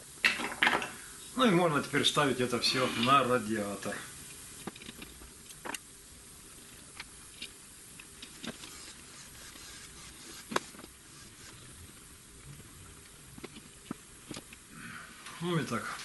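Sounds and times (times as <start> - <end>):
faint hiss: 0.0 - 16.0.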